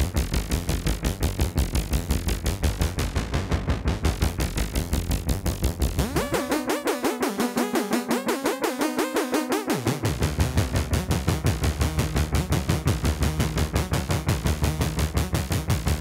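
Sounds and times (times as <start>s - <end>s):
synthesizer bass drone: 0.0s - 16.0s
warbling synthesizer pattern: 5.8s - 15.1s
fast synthesizer pulse: 5.8s - 16.0s.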